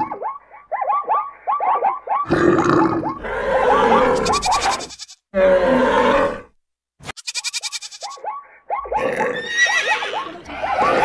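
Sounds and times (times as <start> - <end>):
animal calls and grunts: 0.0 - 11.0
running animals: 3.6 - 5.2, 7.1 - 8.2
animal bleat: 3.6 - 6.4.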